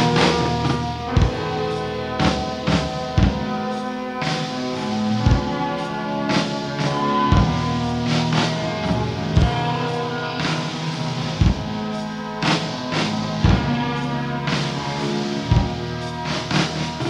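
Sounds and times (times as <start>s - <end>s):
rock band playing: 0.0s - 17.0s.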